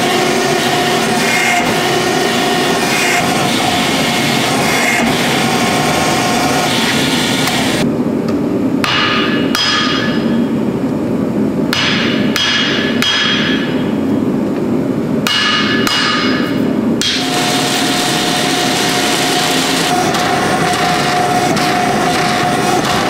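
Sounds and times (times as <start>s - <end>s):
machine hum: 0.0s - 23.0s
steady background noise: 0.0s - 23.0s
hammer striking steel on anvil: 8.8s - 10.5s, 11.7s - 14.0s, 15.2s - 17.4s.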